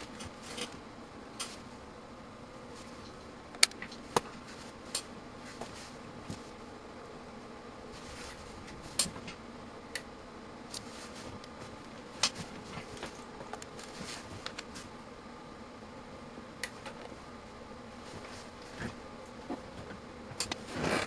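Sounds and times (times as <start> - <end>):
bench equipment hum: 0.0 - 21.0
sharp electrical clicks: 3.0 - 4.3, 8.6 - 10.1, 16.6 - 17.1, 20.4 - 21.0.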